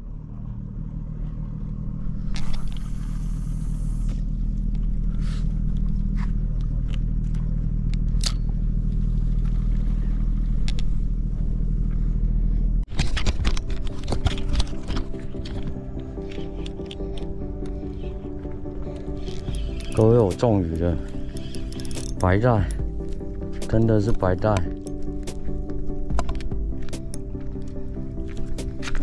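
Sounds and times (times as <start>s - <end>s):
boat engine droning: 0.0s - 12.9s, 13.7s - 29.0s
music: 12.9s - 29.0s.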